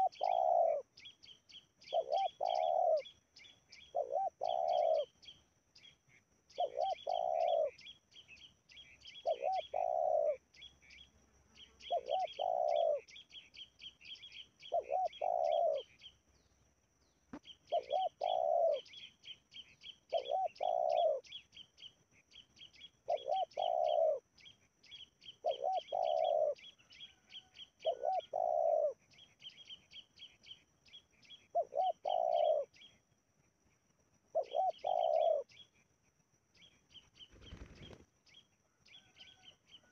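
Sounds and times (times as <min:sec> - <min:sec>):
dove cooing: 0:00.0 - 0:01.0, 0:01.8 - 0:03.1, 0:03.8 - 0:05.2, 0:06.6 - 0:07.9, 0:09.1 - 0:10.4, 0:11.8 - 0:13.4, 0:14.2 - 0:16.0, 0:17.7 - 0:19.1, 0:20.1 - 0:21.4, 0:23.0 - 0:24.2, 0:25.3 - 0:29.1, 0:31.3 - 0:32.9, 0:34.3 - 0:35.6
small birds chirping: 0:00.0 - 0:39.9.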